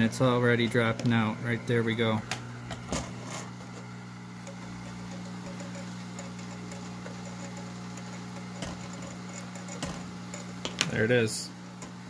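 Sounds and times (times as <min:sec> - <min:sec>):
hot-air gun humming and hissing: 0:00.0 - 0:12.0.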